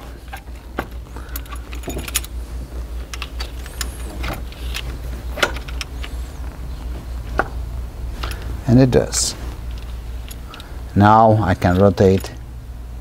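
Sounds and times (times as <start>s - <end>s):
light metallic clicks and knocks: 0.0s - 2.4s, 11.5s - 12.4s
steady low hum: 0.0s - 13.0s.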